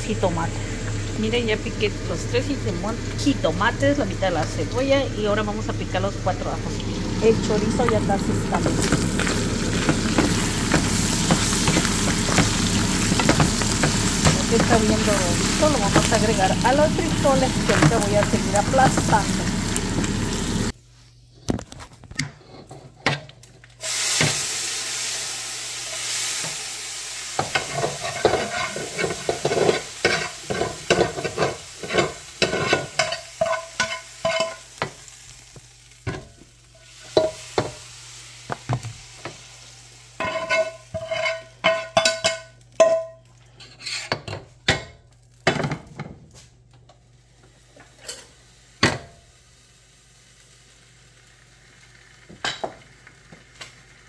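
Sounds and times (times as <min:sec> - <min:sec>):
sausage sizzling in fat: 0:00.0 - 0:20.8, 0:23.7 - 0:44.1, 0:46.3 - 0:54.0
utensil knocking metal pot: 0:08.6 - 0:16.2.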